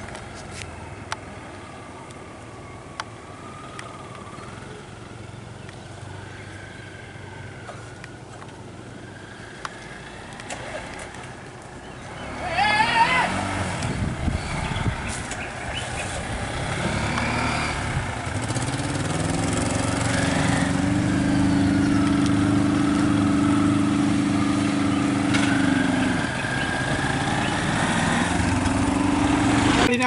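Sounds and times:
small vehicle engine running: 0:03.5 - 0:30.0.

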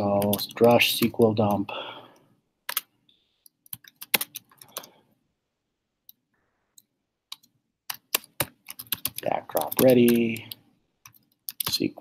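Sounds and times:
keyboard typing clicks: 0:02.7 - 0:04.9, 0:06.0 - 0:11.8.

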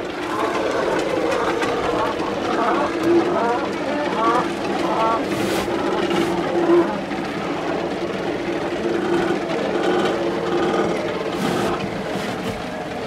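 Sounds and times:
cormorants croaking and grunting: 0:00.2 - 0:08.0.

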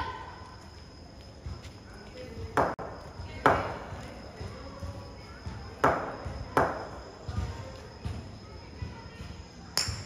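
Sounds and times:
ball bouncing on concrete: 0:01.3 - 0:10.0
ball striking cricket bat: 0:05.8 - 0:07.0.

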